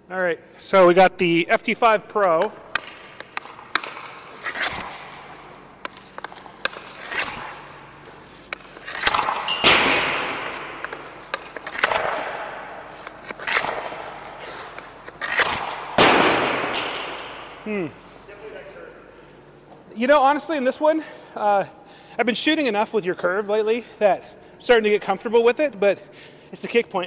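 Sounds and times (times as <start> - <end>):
hockey puck shot cracking: 2.2 - 7.8, 8.5 - 17.6
skates scraping on ice: 2.2 - 17.0.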